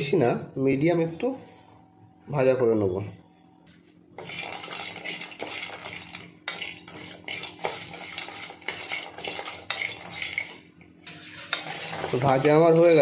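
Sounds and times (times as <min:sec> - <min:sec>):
spatula scraping a pan: 0:04.2 - 0:13.0.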